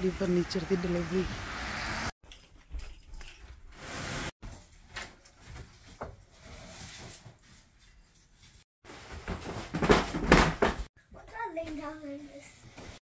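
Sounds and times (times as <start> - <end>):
wooden furniture pieces knocking: 9.2 - 10.9.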